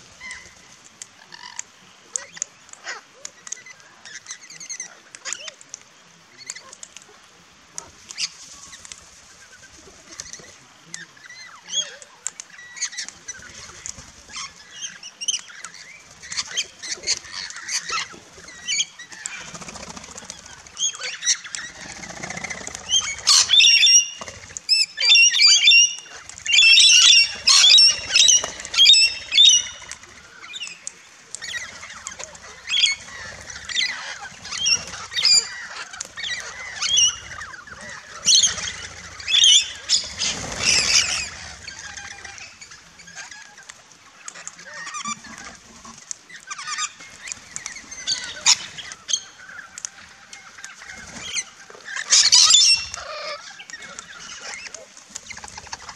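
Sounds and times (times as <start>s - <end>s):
wing flaps: 16.0s - 24.7s
parrots squawking: 20.4s - 43.6s, 46.4s - 54.8s.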